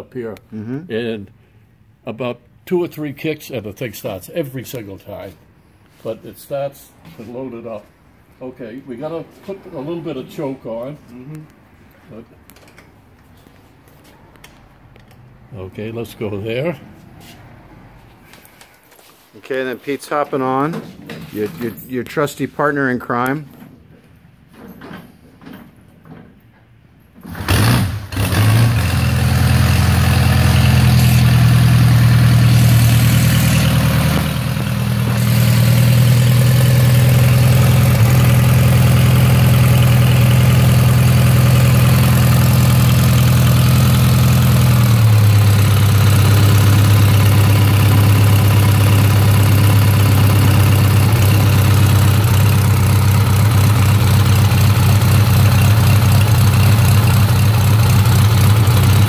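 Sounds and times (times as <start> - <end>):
motorcycle engine idling: 31.3 - 59.0.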